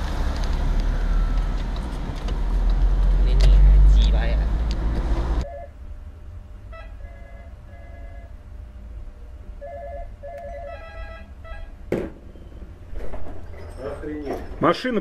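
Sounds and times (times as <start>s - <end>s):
sharp knock: 11.9s - 12.3s.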